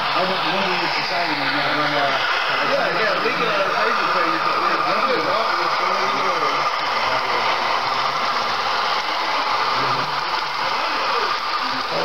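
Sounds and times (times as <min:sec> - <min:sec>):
faint voices: 0:00.0 - 0:12.0
model train whirring: 0:00.0 - 0:12.0.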